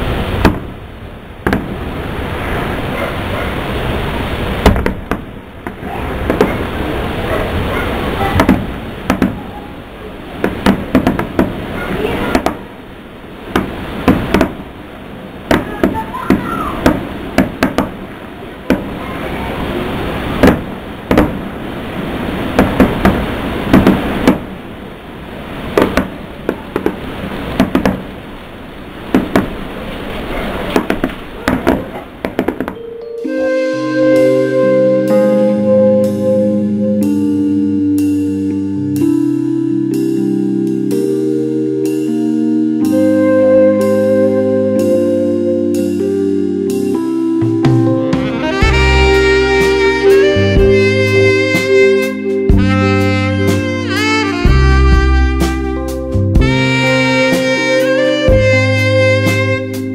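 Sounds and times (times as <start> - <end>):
fireworks bursting: 25.7 - 28.2, 30.7 - 32.8.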